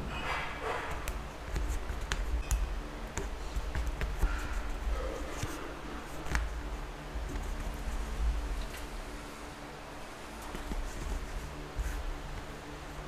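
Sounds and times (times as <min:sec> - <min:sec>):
low steady hum: 0:00.0 - 0:13.0
fingers rubbing tape: 0:00.3 - 0:08.2.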